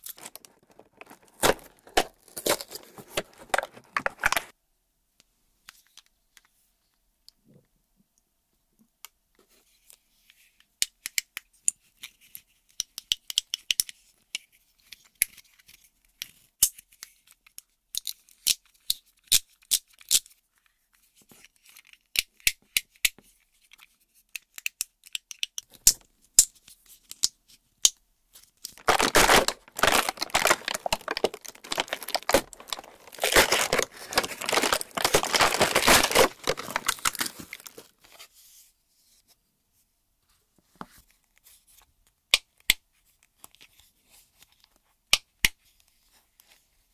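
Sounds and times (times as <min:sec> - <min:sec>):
packaging tearing and crinkling: 0:00.0 - 0:04.5, 0:28.7 - 0:37.9.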